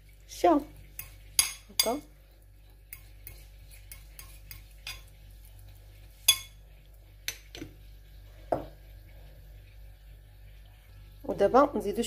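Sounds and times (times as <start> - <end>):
fork scraping ceramic plate: 2.9 - 5.1.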